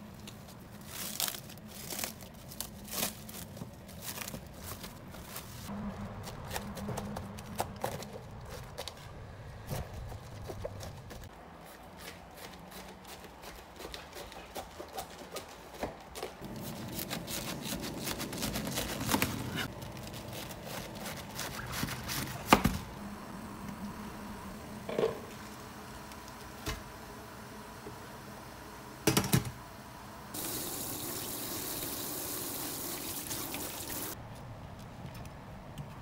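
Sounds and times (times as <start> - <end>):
knife cutting cabbage: 16.4 - 22.8.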